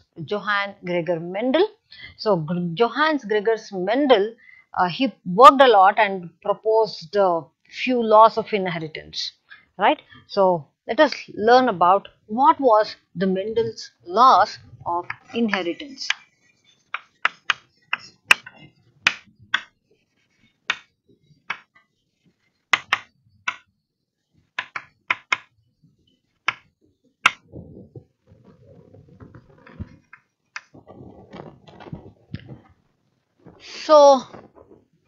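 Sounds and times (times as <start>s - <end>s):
chalk tapping on blackboard: 15.1s - 20.9s, 21.5s - 21.7s, 22.7s - 23.7s, 24.6s - 25.5s, 26.4s - 27.4s
person shuffling and rustling: 26.8s - 35.0s.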